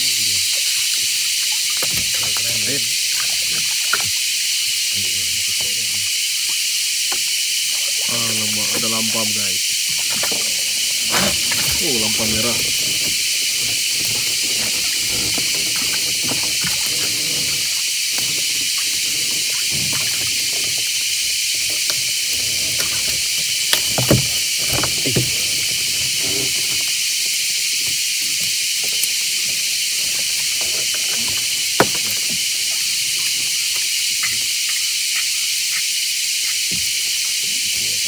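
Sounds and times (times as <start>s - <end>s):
insect chorus hiss: 0.0s - 38.0s
knocks against boat: 23.7s - 25.7s.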